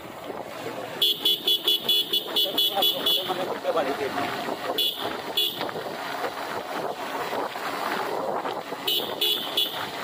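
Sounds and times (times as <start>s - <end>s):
motorbike road noise: 0.0s - 10.0s
wind rush: 3.3s - 10.0s.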